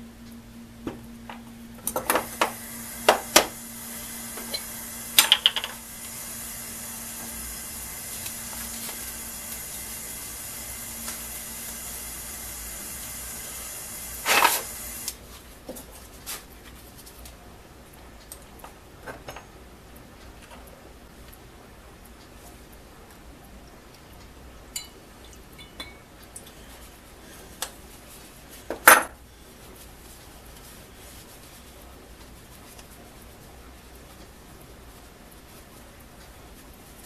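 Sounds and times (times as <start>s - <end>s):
steady hiss: 0.0s - 15.6s.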